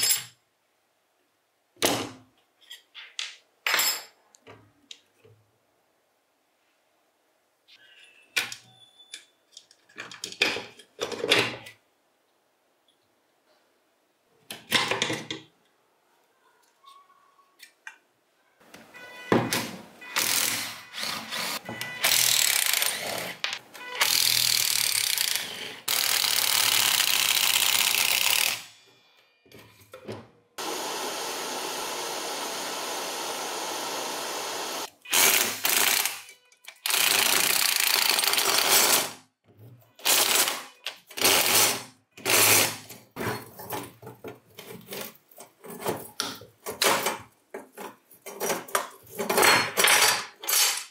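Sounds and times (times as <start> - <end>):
handheld power tool running: 24.0 - 28.6, 30.6 - 36.2.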